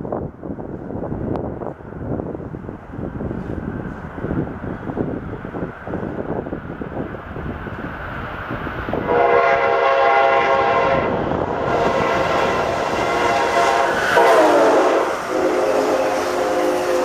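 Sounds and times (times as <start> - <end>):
train passing rumble: 0.0 - 17.0
train air horn blasts: 9.0 - 17.0.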